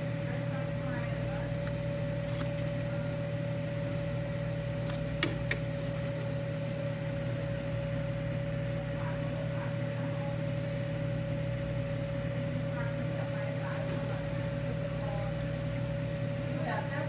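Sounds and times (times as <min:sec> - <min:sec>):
appliance electric hum: 0:00.0 - 0:17.0
metal tongs clicking on pan: 0:04.7 - 0:05.7.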